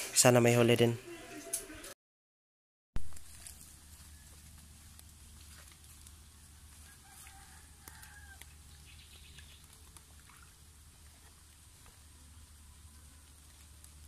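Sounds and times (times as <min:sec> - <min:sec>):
low steady hum: 0:03.1 - 0:14.0
rooster crowing faintly: 0:06.3 - 0:09.0.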